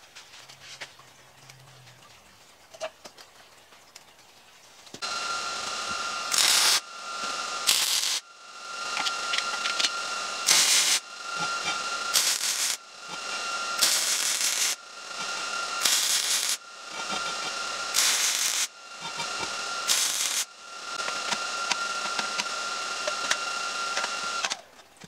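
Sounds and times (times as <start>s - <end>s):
welder crackling hiss: 5.0s - 24.6s.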